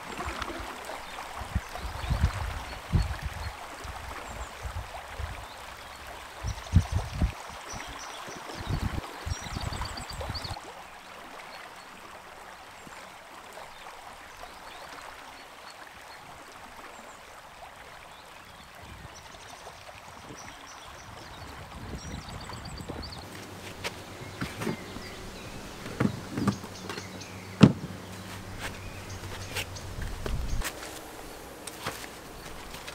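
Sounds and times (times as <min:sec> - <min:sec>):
river water flowing: 0:00.0 - 0:32.9
small birds chirping: 0:18.2 - 0:32.9
paddle thumps and splashes: 0:23.2 - 0:32.9.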